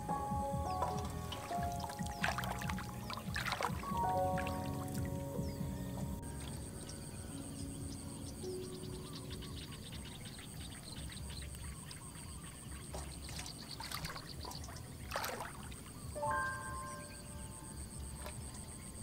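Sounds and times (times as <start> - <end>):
water splashing and dripping: 0.0 - 7.1, 10.0 - 17.1, 18.0 - 19.0
insect trill: 0.1 - 19.0.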